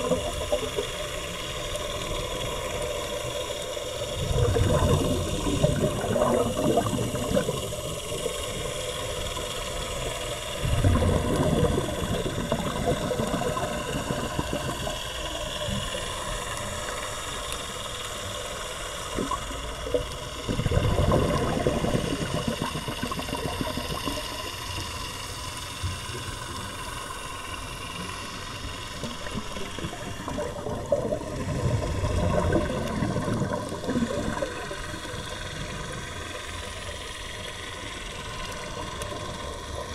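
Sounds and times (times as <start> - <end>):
faint steady hum: 0.0 - 39.9
regulator exhaust bubbles underwater: 0.0 - 39.9.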